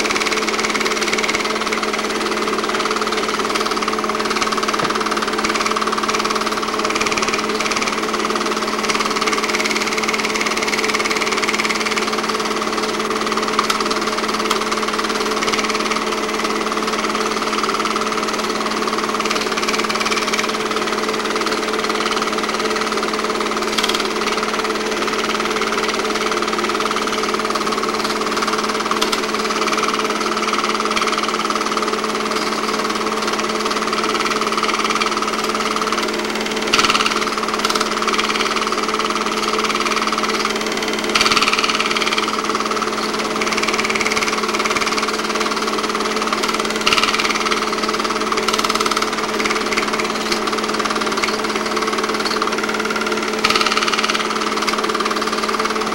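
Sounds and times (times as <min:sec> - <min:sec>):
film projector humming: 0:00.0 - 0:55.9
sharp clicks: 0:53.4 - 0:54.8.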